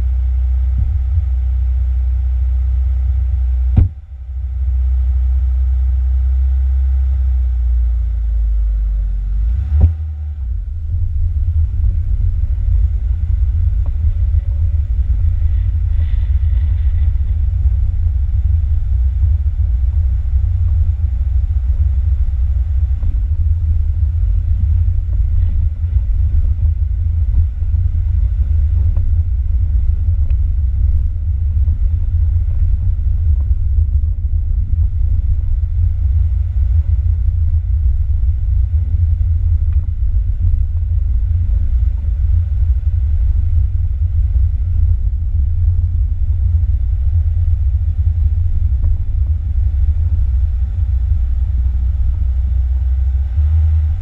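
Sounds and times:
car driving on bumpy dirt track: 0.0s - 54.0s.

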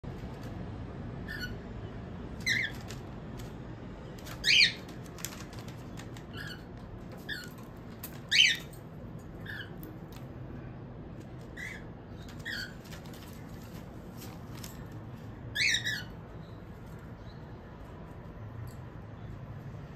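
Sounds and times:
cockatiel chirps: 1.2s - 1.6s, 2.4s - 3.0s, 4.2s - 4.9s, 8.3s - 8.7s, 9.4s - 9.9s, 11.5s - 13.1s, 15.5s - 16.2s.

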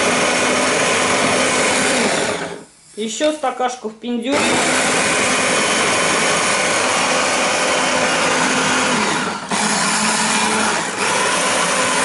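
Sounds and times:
food processor running: 0.0s - 2.6s, 4.3s - 12.0s.

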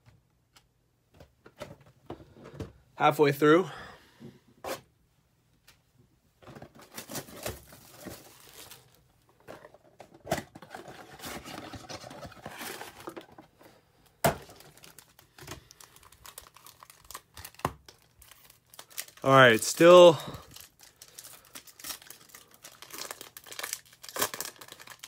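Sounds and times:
foil packs crinkling: 6.8s - 9.1s, 14.3s - 25.0s.

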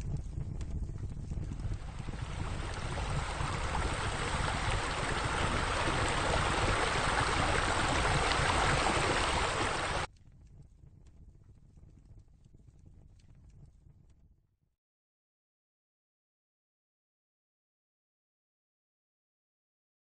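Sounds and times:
water splashing from pool jets: 1.7s - 10.1s.

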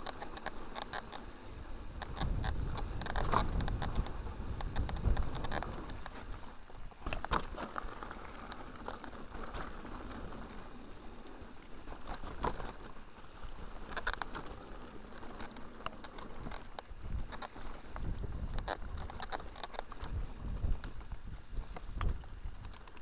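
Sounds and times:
bike tyres rumbling over dirt: 0.0s - 23.0s
bike rattling and knocking: 2.0s - 10.6s.

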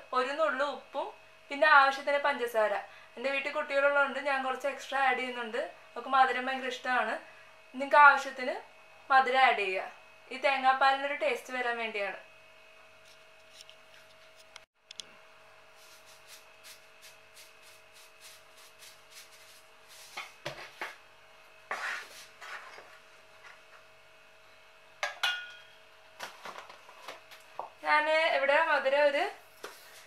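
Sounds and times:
utensils clinking against pot: 25.0s - 25.7s.

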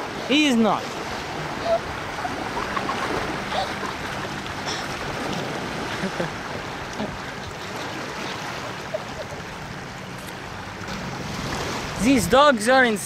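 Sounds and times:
lake water lapping and splashing: 0.0s - 13.0s.

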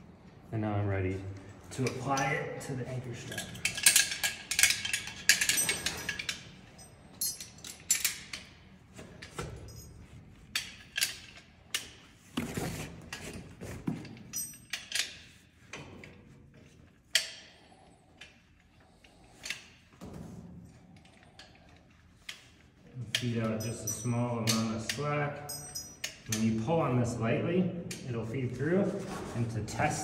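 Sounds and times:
carabiners clinking and clicking: 1.5s - 12.2s, 12.9s - 20.0s, 20.6s - 26.7s.

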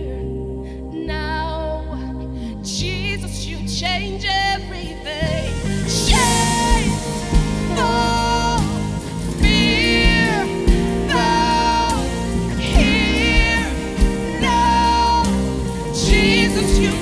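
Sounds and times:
sustained chords: 0.0s - 17.0s
person singing long notes: 4.8s - 17.0s.

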